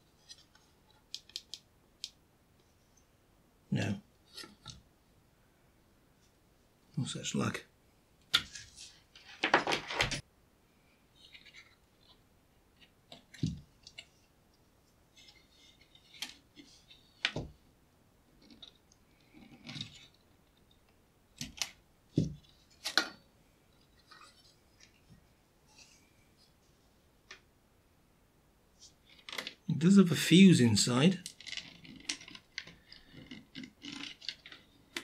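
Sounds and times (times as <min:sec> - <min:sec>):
plastic connectors clicking and scraping: 0:31.2 - 0:35.0.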